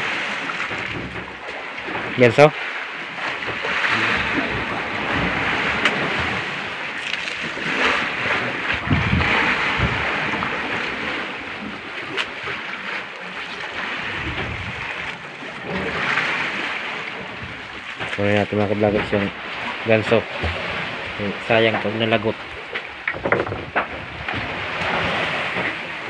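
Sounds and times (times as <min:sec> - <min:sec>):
water sloshing against boat hull: 0:00.0 - 0:26.0
wind noise on microphone: 0:07.6 - 0:11.8, 0:14.0 - 0:16.5.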